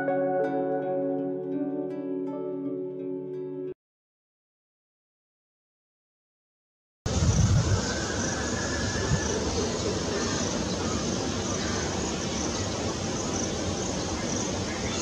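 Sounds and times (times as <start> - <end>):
distant traffic: 7.1 - 15.0.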